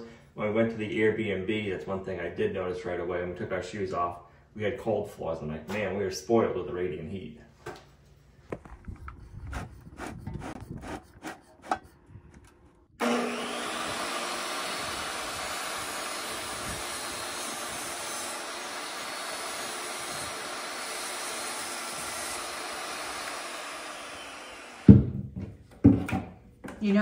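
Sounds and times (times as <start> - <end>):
table saw cutting flooring: 13.0 - 25.4.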